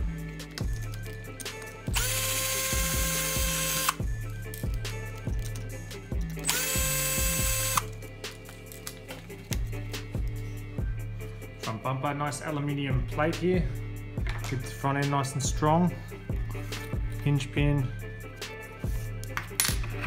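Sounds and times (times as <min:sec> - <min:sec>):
background music with steady beat: 0:00.0 - 0:20.0
power screwdriver whining: 0:01.9 - 0:04.0, 0:06.4 - 0:07.9.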